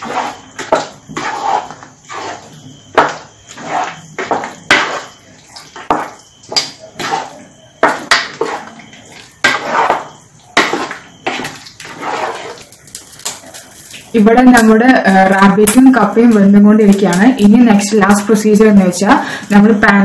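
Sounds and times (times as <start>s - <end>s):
spoon stirring thick curry: 0.0s - 14.1s.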